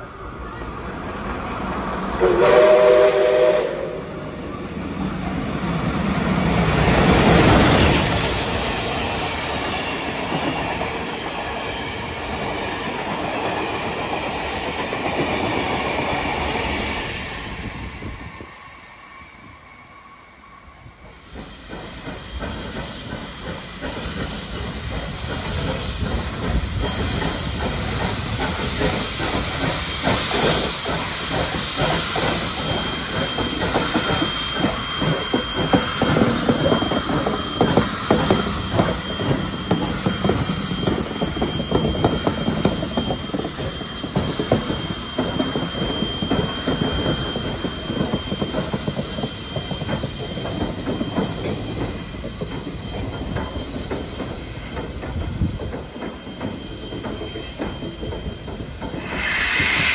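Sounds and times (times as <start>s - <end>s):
train wheels clattering on rails: 0.0s - 18.5s, 20.9s - 59.9s
steam hissing: 0.0s - 59.9s
high steady whine: 58.9s - 59.9s.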